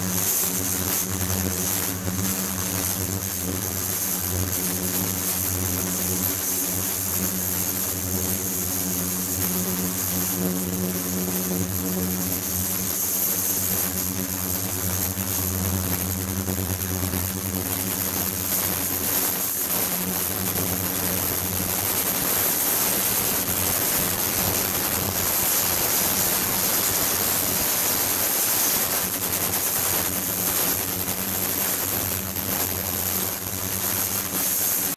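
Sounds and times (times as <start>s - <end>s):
thin high whine: 11.0s - 34.9s.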